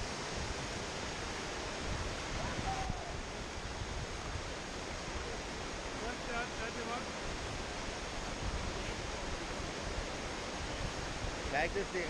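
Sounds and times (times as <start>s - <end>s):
whitewater rushing through rapids: 0.0s - 12.0s.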